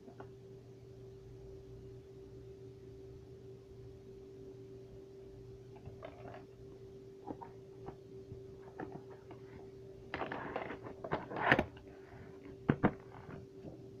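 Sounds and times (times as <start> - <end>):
faint steady hum: 0.0 - 14.0
plastic clatter: 8.7 - 9.4, 10.1 - 13.8.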